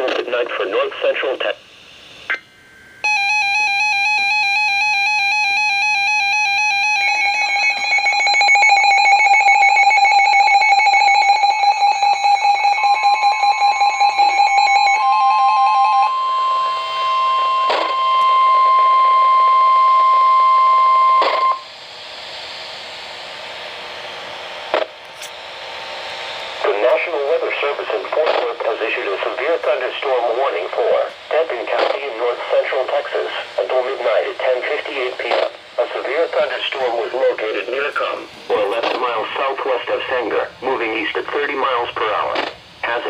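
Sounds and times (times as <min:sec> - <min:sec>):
radio hiss: 0:00.0 - 0:02.5, 0:26.4 - 0:43.0
steady single-pitch warning tone: 0:02.2 - 0:24.7
warbling electronic alarm beep: 0:03.0 - 0:21.7
fast-pulsing alarm: 0:03.0 - 0:23.8.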